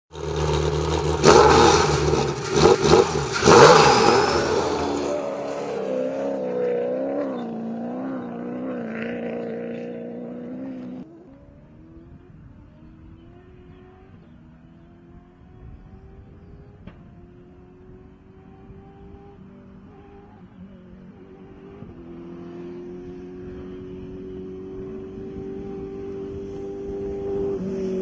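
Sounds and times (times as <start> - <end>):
faint engine running: 0.1 - 5.8
rally car engines revving: 0.1 - 28.0.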